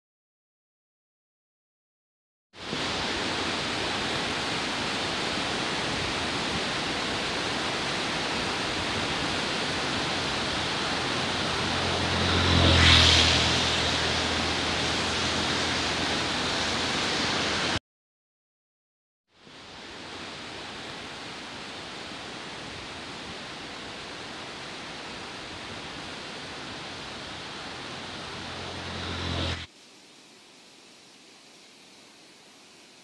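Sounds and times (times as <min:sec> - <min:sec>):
wind rushing on microphone: 0:02.6 - 0:17.8
low hum: 0:09.3 - 0:17.8, 0:26.4 - 0:29.7.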